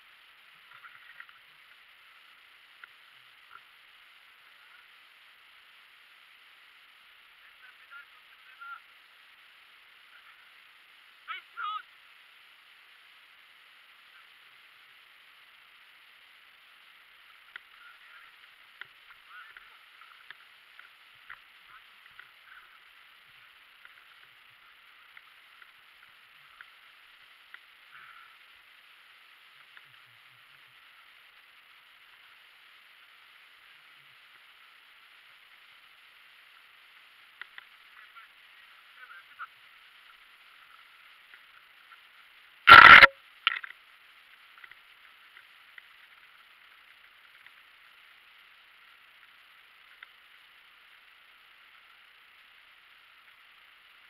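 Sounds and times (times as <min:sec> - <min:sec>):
faint outdoor hiss: 0:00.0 - 0:54.0
light ticks: 0:27.5 - 0:27.7, 0:37.4 - 0:37.8, 0:49.2 - 0:50.2.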